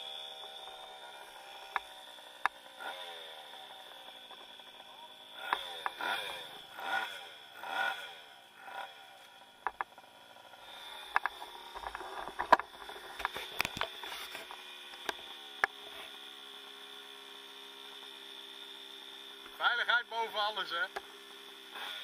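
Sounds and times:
motorbike engine idling: 0:00.0 - 0:22.0
sharp clicks and knocks: 0:09.6 - 0:10.0, 0:11.1 - 0:15.8.

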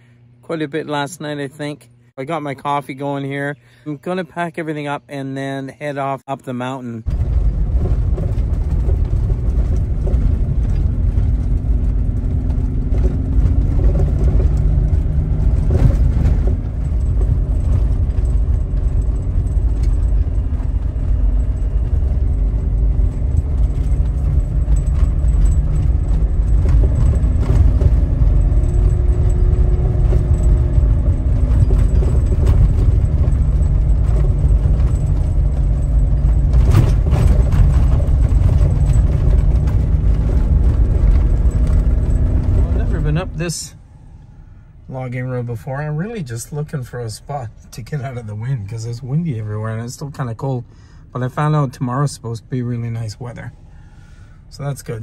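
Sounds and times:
tyres and engine rumbling on gravel: 0:00.0 - 0:55.0
interior rattles and clinks: 0:07.1 - 0:44.3.

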